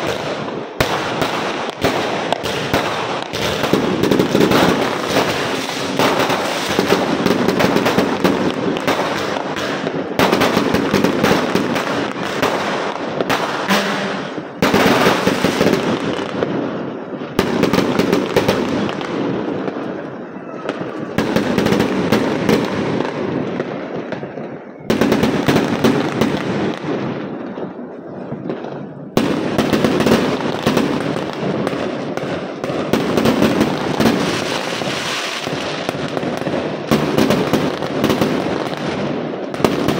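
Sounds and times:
fireworks bursting and crackling: 0.0s - 39.9s.

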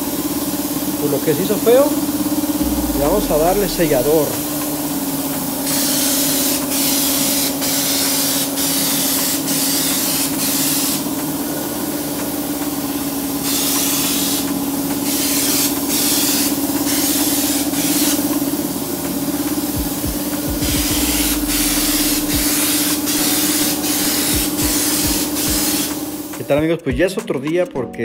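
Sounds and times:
spray gun hissing bursts: 5.4s - 26.5s
steady motor hum: 18.8s - 25.6s.

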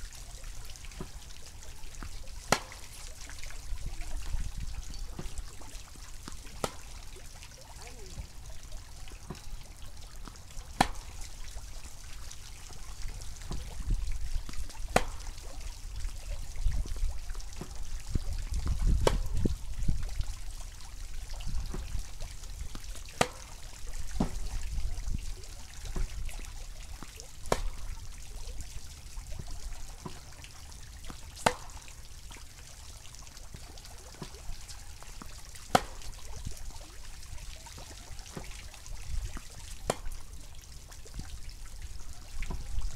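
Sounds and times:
tennis ball bounces: 2.0s - 3.0s, 6.2s - 7.0s, 10.2s - 11.2s, 13.4s - 13.7s, 14.5s - 15.2s, 19.0s - 19.3s, 23.2s - 23.5s, 27.5s - 27.8s, 31.1s - 31.8s, 35.7s - 36.1s, 39.4s - 40.2s
tennis racket striking ball: 2.5s - 3.0s, 6.3s - 7.0s, 10.8s - 11.2s, 14.9s - 15.2s, 19.0s - 19.3s, 23.2s - 23.5s, 27.5s - 27.8s, 31.4s - 31.8s, 35.7s - 36.1s, 39.8s - 40.1s
wind rumble on microphone: 3.6s - 5.3s, 13.0s - 14.9s, 15.7s - 20.5s, 21.1s - 22.8s, 23.9s - 26.4s.

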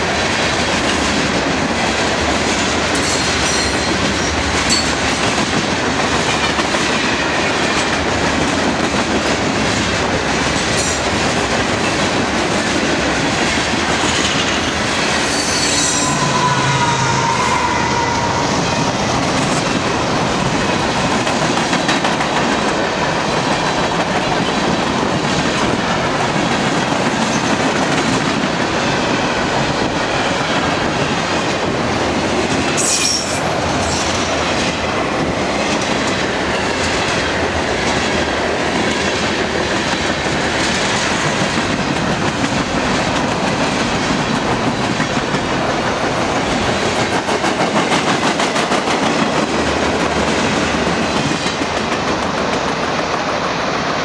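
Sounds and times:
freight train wheels rumbling: 0.0s - 54.0s
sharp wheel screech: 15.2s - 18.8s, 32.8s - 34.1s
high-pitched wheel squeals: 15.2s - 18.9s.

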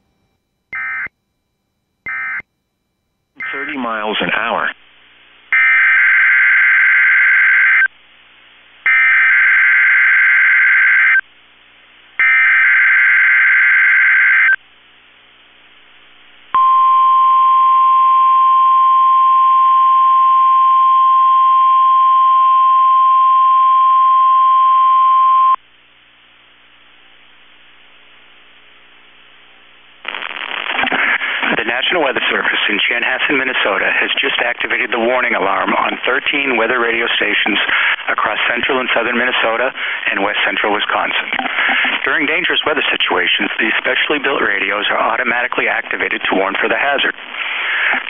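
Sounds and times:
digital data tone bursts: 2.1s - 2.4s, 3.4s - 3.9s
steady high-pitched alarm tone: 2.1s - 2.4s.

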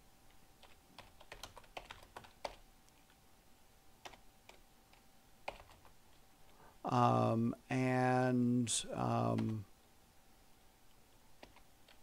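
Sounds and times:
faint steady hum: 0.0s - 12.0s
computer keyboard typing: 0.6s - 2.6s, 4.0s - 4.6s, 5.4s - 6.0s, 9.3s - 9.6s, 11.4s - 12.0s.

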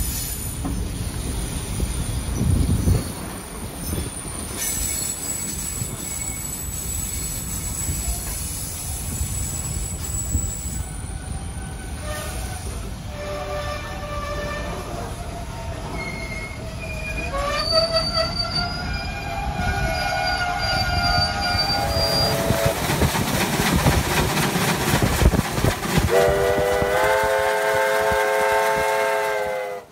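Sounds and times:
train rumbling on rails: 0.0s - 29.9s
wheel squeal: 3.8s - 12.8s, 13.6s - 22.6s
steam whistle chord: 26.1s - 29.9s.

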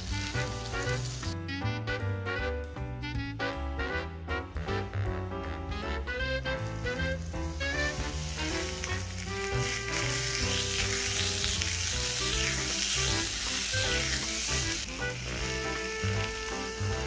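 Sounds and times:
steak sizzling on hot plate: 0.0s - 1.4s, 6.4s - 17.0s.

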